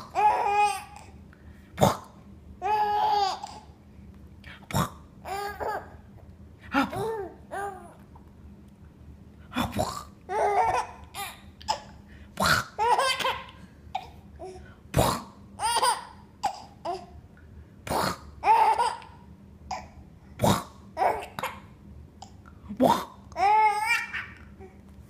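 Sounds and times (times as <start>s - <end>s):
baby laughing: 0.0s - 1.0s, 2.6s - 3.7s, 5.3s - 6.0s, 10.3s - 12.0s, 12.6s - 14.2s, 15.6s - 17.1s, 18.4s - 19.9s, 23.4s - 24.5s.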